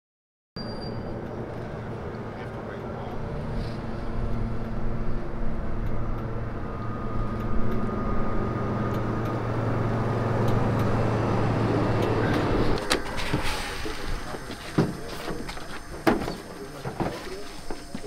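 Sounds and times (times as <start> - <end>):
electric truck hum: 0.9 - 18.0
tyre noise: 12.1 - 18.0.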